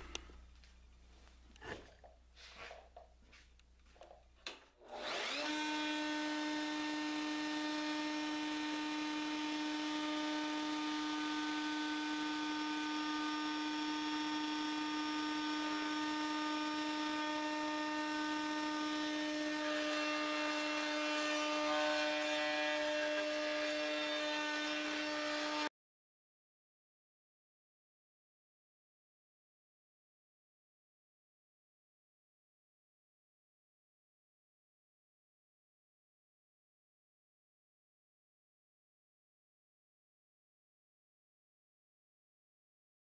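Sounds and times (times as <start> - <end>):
router bit cutting wood: 4.8 - 25.7
router motor whine: 4.8 - 25.7.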